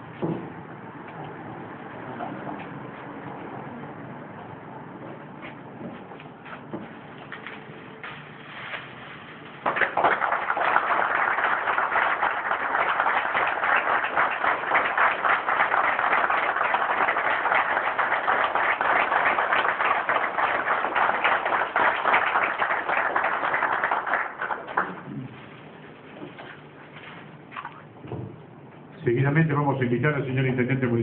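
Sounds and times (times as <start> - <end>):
crowd applauding: 9.6 - 25.3.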